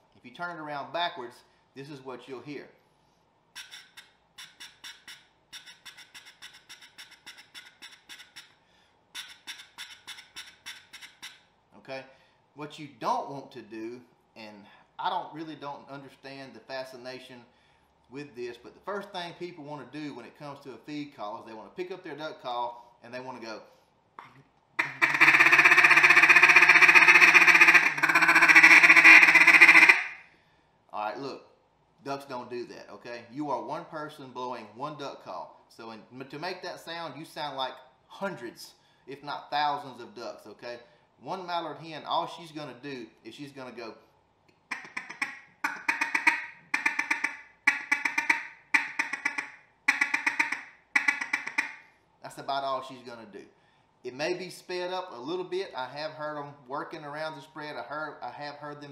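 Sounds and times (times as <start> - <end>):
duck call chuckle: 3.6 - 8.5, 9.2 - 11.4, 24.8 - 30.2, 44.7 - 51.8.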